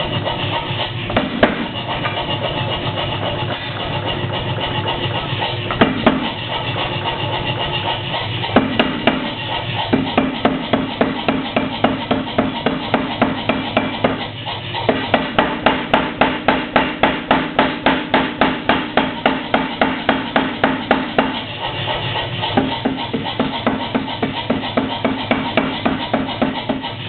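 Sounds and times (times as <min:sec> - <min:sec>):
power hammer striking steel: 0:01.1 - 0:02.8, 0:05.6 - 0:07.7, 0:08.4 - 0:27.0.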